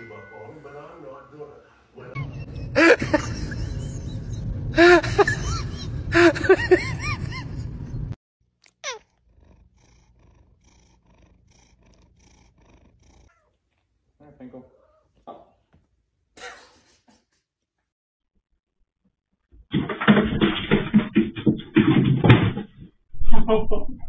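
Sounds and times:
steady low rumble: 2.4 - 8.2
cat meowing loudly: 8.7 - 9.1.

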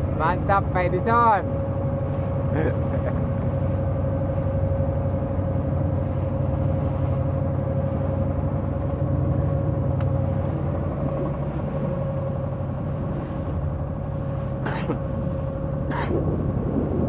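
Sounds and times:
boat engine droning: 0.0 - 17.0.

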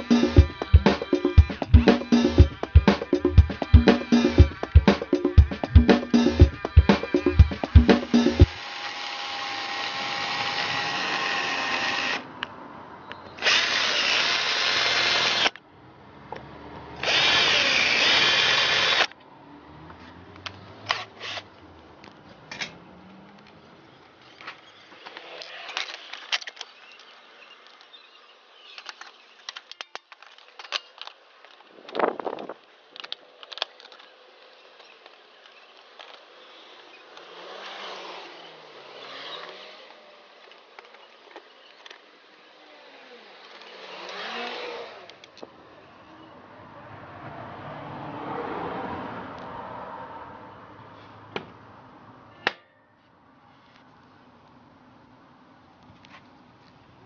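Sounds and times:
power drill whining: 7.1 - 12.3, 13.4 - 15.6, 17.0 - 19.1, 36.1 - 40.1, 40.9 - 45.2.

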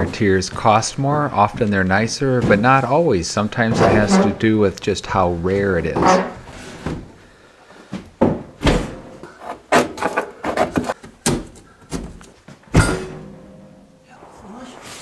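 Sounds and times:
metal scraper scraping and knocking: 3.6 - 4.4.

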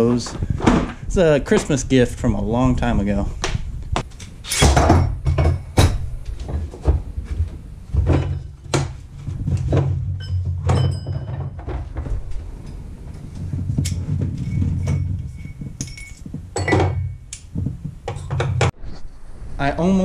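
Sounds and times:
faint metallic ringing: 10.1 - 17.5
metal tools clicking and knocking: 13.8 - 17.5.

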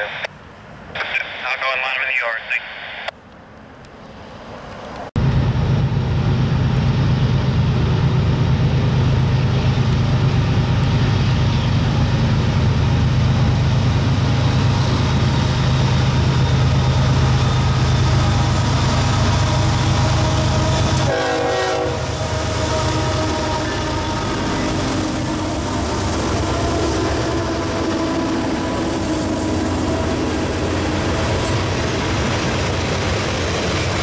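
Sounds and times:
diesel locomotives droning: 3.0 - 34.0.

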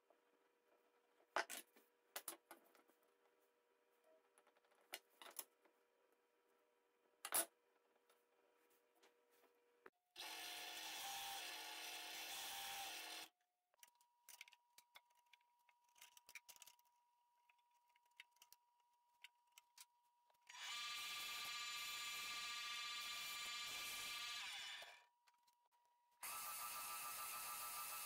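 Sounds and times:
band saw cutting a board: 10.2 - 13.3, 20.5 - 25.0
power saw running: 20.5 - 25.0.

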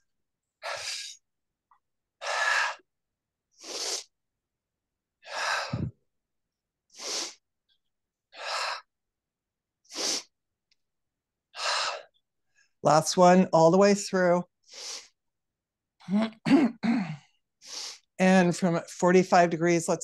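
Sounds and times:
woman breathing hard: 5.2 - 6.0, 8.3 - 8.9, 11.5 - 12.2.

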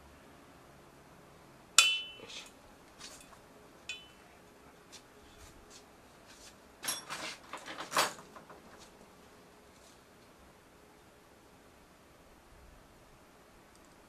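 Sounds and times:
metal fittings clinking: 3.9 - 4.2.

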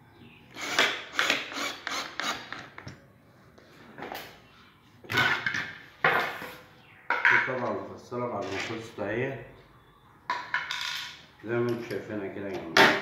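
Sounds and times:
drill driving screws into wood: 0.5 - 2.8.

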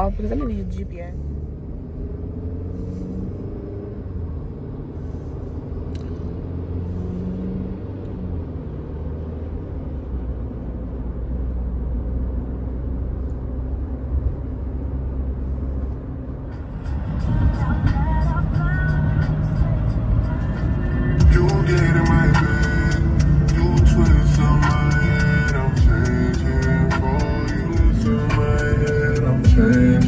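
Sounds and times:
car cabin road and engine rumble: 0.0 - 30.0.

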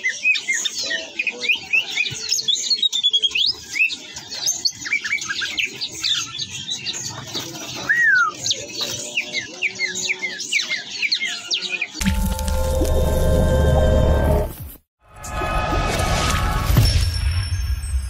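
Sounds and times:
songbirds chirping and whistling: 0.0 - 12.9.

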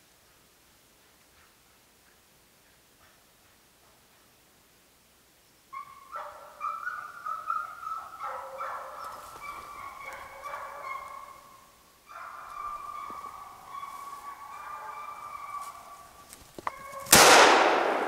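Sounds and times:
hound baying: 5.7 - 17.1.

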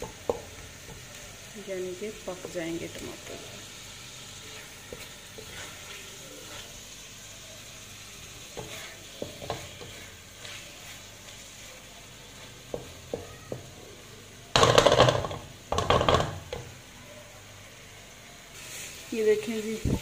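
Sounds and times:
vegetables sizzling in a pan: 0.0 - 20.0
spatula scraping a pan: 2.1 - 13.6.

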